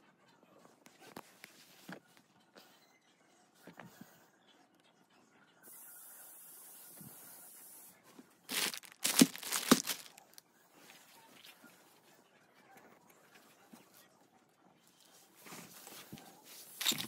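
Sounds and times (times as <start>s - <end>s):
plastic bag crinkling: 8.5s - 10.4s, 16.8s - 17.0s.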